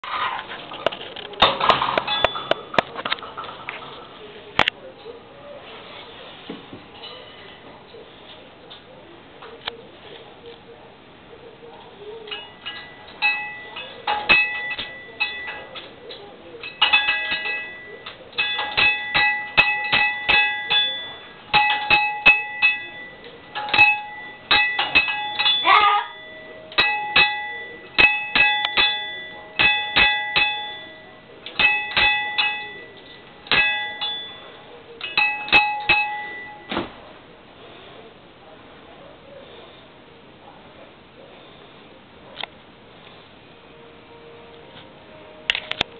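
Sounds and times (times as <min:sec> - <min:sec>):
small metal bell ringing: 0:12.3 - 0:15.8, 0:16.6 - 0:36.8.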